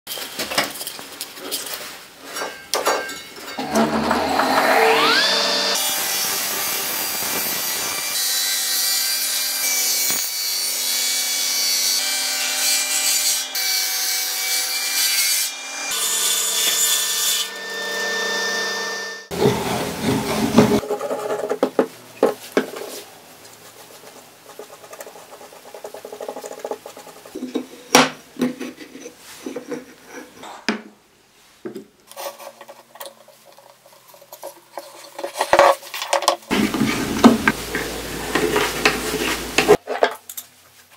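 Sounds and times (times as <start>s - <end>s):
table saw cutting log: 3.6s - 20.8s, 36.5s - 39.8s.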